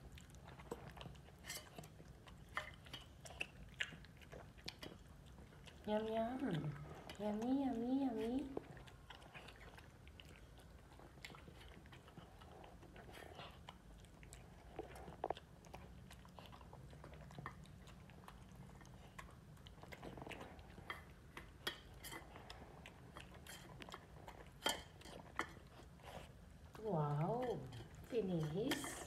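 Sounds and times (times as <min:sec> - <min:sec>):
dog chewing: 0:00.0 - 0:29.0.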